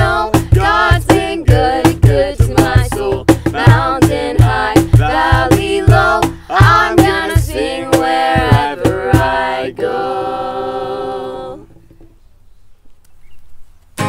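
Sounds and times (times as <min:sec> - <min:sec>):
cajon hits: 0:00.0 - 0:09.5
acoustic guitar: 0:00.0 - 0:09.6
girls singing: 0:00.0 - 0:11.8.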